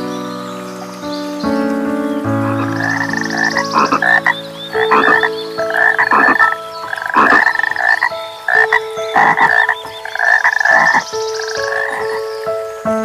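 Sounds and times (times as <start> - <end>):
animal calls: 2.4 - 12.3.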